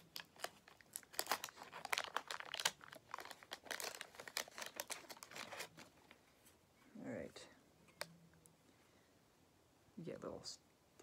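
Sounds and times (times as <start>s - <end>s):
wrapper tearing and crinkling: 0.0s - 6.1s.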